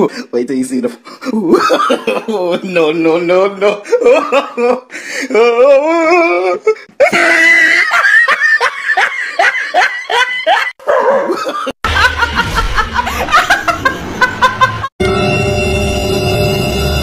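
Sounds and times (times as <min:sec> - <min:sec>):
person laughing hard: 0:03.7 - 0:14.9.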